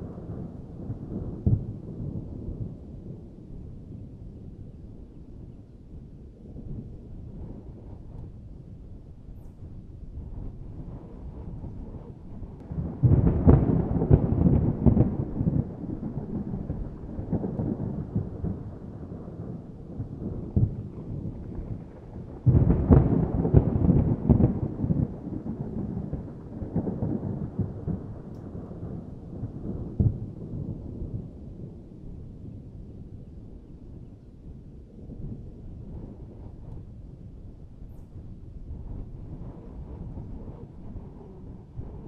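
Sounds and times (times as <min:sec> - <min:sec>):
thunder rumbling and cracking: 0:00.0 - 0:42.0.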